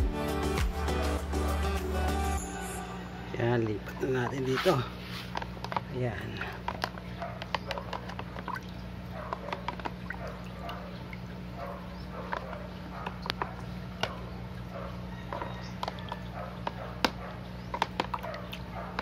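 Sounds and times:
water trickling through a strainer: 0:05.9 - 0:16.7
small water splashes: 0:08.2 - 0:11.9.

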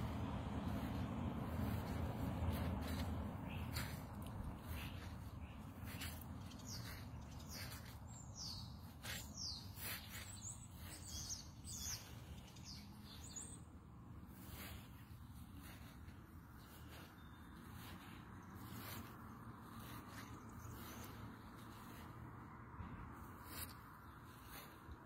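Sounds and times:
faint low rumble: 0:00.0 - 0:07.9
small birds chirping: 0:00.0 - 0:25.0.

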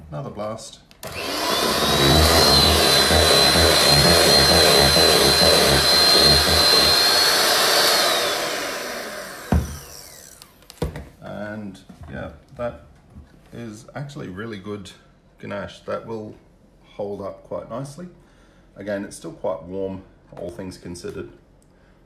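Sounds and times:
electric hand mixer whining: 0:01.0 - 0:10.6.

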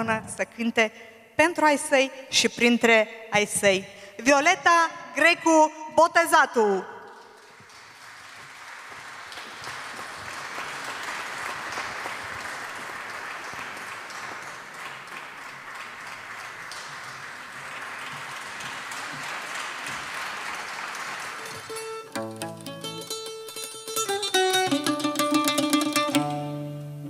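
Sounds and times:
audience applauding: 0:07.1 - 0:23.0.

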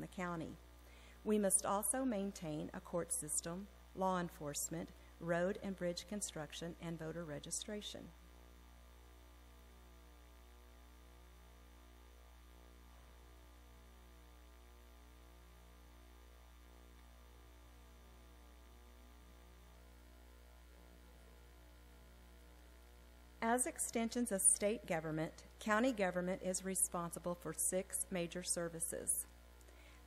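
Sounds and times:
low mains hum: 0:00.0 - 0:30.0.

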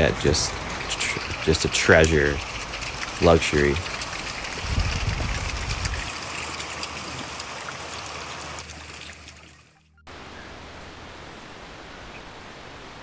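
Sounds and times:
stream trickling over rocks: 0:00.0 - 0:10.1.

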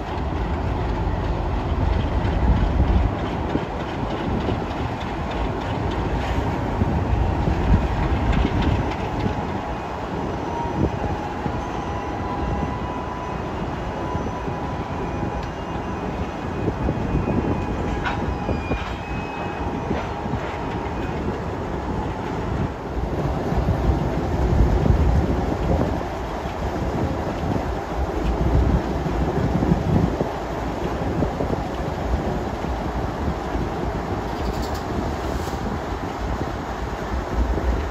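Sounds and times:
wheels clicking over rail joints: 0:00.0 - 0:10.2, 0:17.4 - 0:22.6, 0:23.8 - 0:37.9
locomotive engine rumble: 0:00.0 - 0:37.9
high wheel squeal: 0:10.2 - 0:20.2.

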